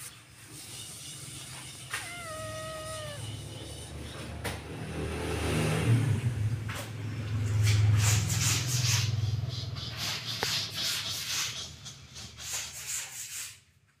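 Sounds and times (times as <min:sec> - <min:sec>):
plastic toy car scraping on tile: 0:07.5 - 0:13.7.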